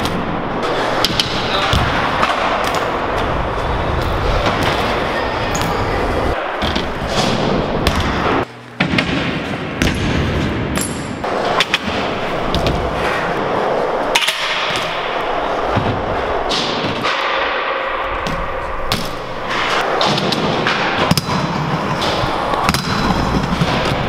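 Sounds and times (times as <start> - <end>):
bike tyres rolling on concrete: 0.0 - 8.4
bike landing thuds: 18.2 - 19.2.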